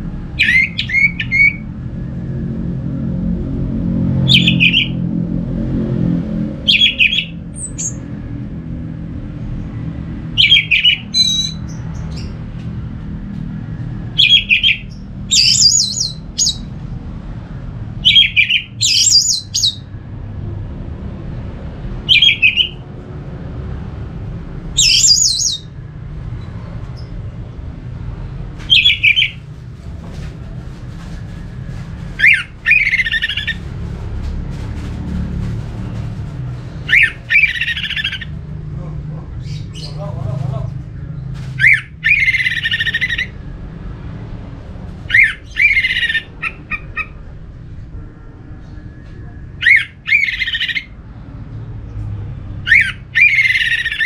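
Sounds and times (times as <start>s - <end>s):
steady low rumble: 0.0s - 53.2s.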